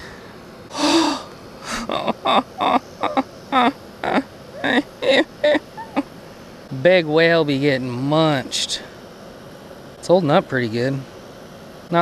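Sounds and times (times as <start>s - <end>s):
man sighing: 0.7s - 2.0s.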